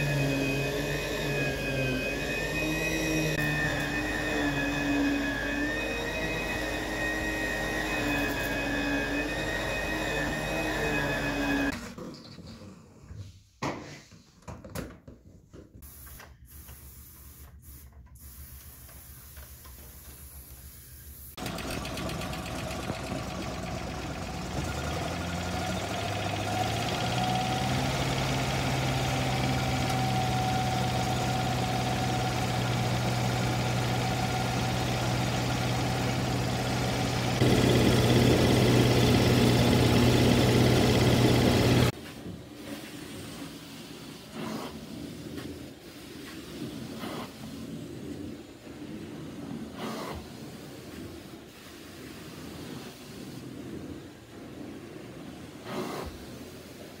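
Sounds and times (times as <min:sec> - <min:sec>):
engine drone: 0:00.0 - 0:11.7, 0:21.4 - 0:42.0.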